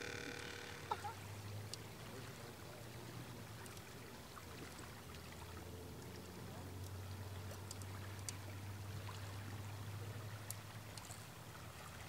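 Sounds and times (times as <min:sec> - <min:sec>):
steady low hum: 0:00.0 - 0:01.7
water or wind noise: 0:00.0 - 0:12.0.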